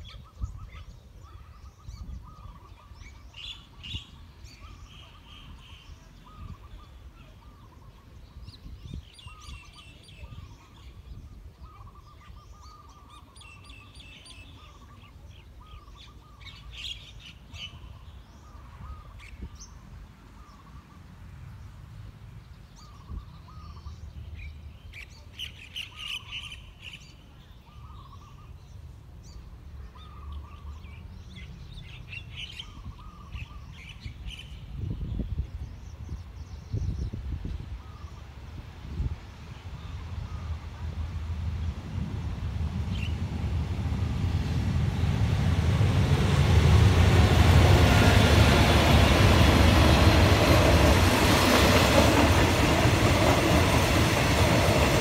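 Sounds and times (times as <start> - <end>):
birds chirping: 39.2 - 55.0.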